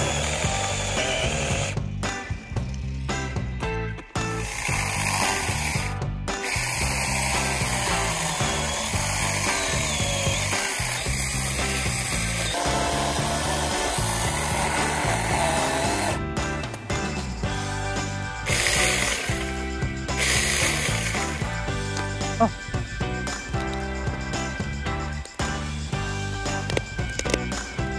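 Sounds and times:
electric chainsaw cutting roots: 0:00.0 - 0:01.9, 0:04.2 - 0:16.3, 0:18.0 - 0:22.5
background music: 0:00.0 - 0:27.9.

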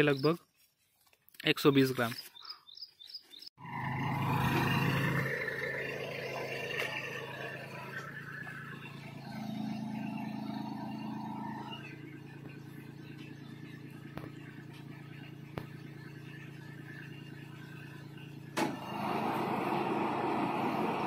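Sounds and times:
tractor engine running: 0:03.6 - 0:21.0.

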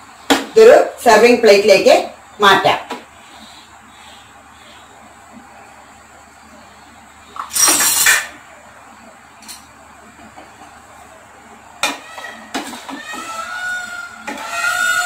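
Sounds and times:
dishes and cutlery clattering: 0:07.4 - 0:08.3.

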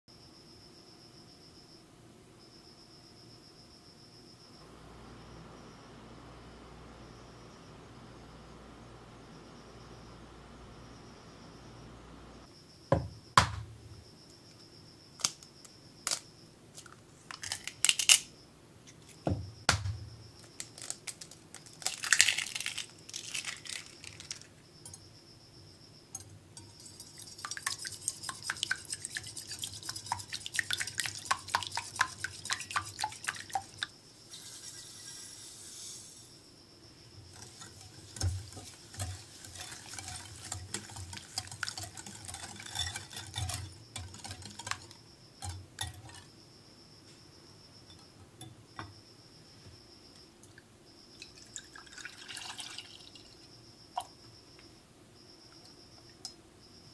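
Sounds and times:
eggs cracking: 0:16.8 - 0:18.3, 0:20.4 - 0:24.6, 0:26.2 - 0:33.9, 0:37.3 - 0:46.3
sugar pouring: 0:20.6 - 0:25.0, 0:26.2 - 0:36.3, 0:37.3 - 0:46.2, 0:51.2 - 0:53.5
whisk clinking against glass bowl: 0:26.2 - 0:33.9, 0:37.3 - 0:46.3.

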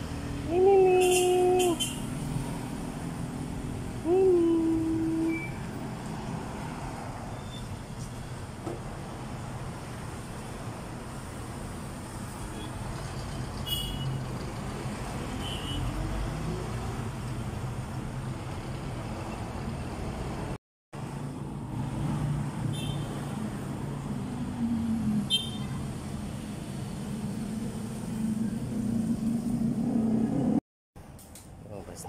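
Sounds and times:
road traffic rumble: 0:00.0 - 0:32.0
brief high squeaks: 0:07.3 - 0:08.2.

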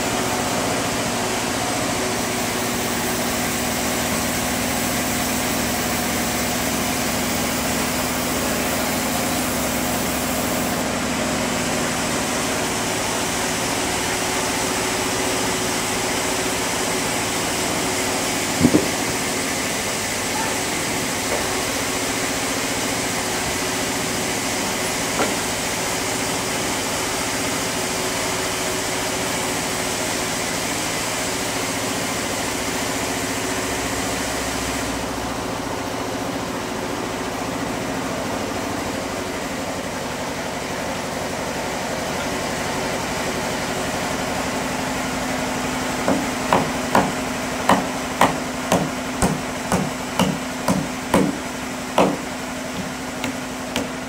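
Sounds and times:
sawmill machinery drone: 0:00.0 - 0:54.0
hammer blows on wood: 0:46.1 - 0:51.4, 0:52.0 - 0:54.0.

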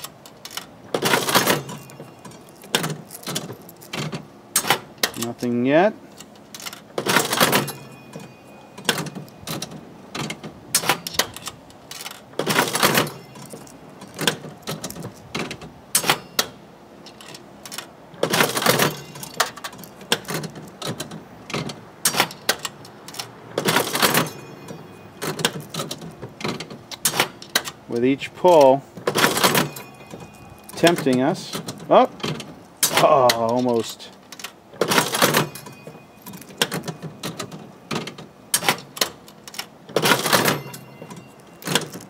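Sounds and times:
coins dropping: 0:00.0 - 0:04.7, 0:16.0 - 0:20.7, 0:28.5 - 0:32.0, 0:32.8 - 0:42.0
slot machine lever and reels clatter: 0:00.0 - 0:42.0.

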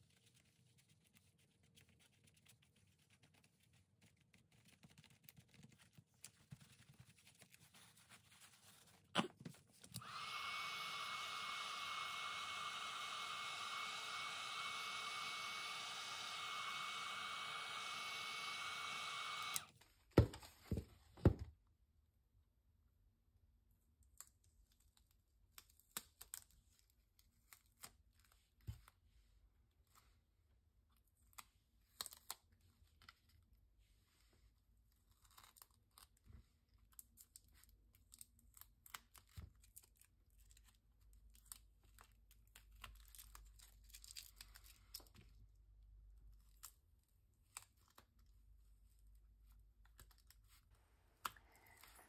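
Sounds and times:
paper rustling: 0:00.0 - 0:09.9.

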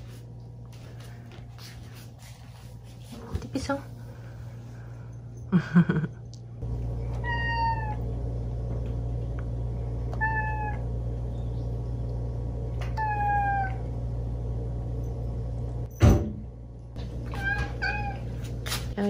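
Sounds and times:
steady low hum: 0:00.0 - 0:19.0
cat meowing: 0:07.2 - 0:08.0, 0:10.2 - 0:10.8, 0:12.9 - 0:13.8, 0:17.3 - 0:18.2.

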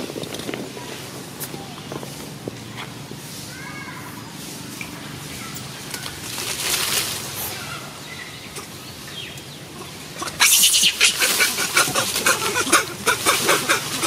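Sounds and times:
dry leaves and twigs crackling: 0:04.6 - 0:09.5, 0:10.2 - 0:14.0.

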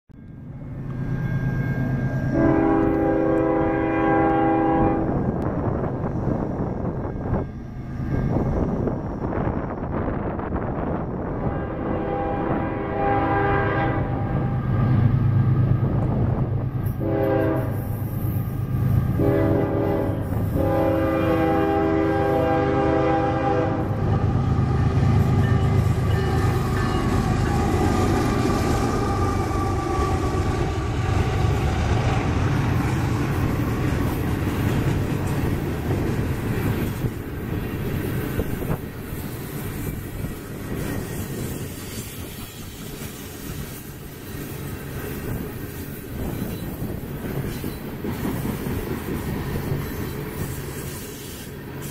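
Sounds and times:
diesel locomotive rumble: 0:00.2 - 0:51.9
locomotive air horn blasts: 0:02.3 - 0:05.2, 0:11.4 - 0:14.5, 0:16.9 - 0:18.4, 0:19.1 - 0:28.4
train wheels clickety-clack: 0:25.0 - 0:51.9.

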